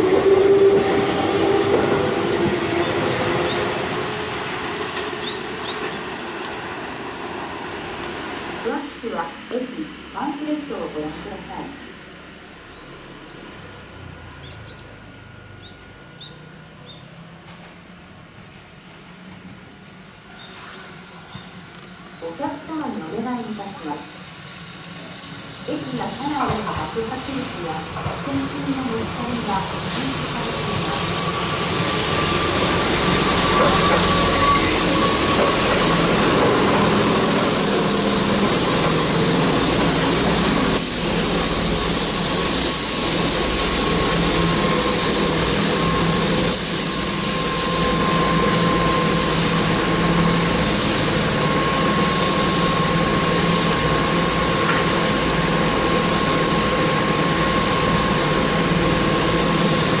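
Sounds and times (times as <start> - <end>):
electric train rolling to a stop: 0.0 - 60.0
high whine: 30.1 - 60.0.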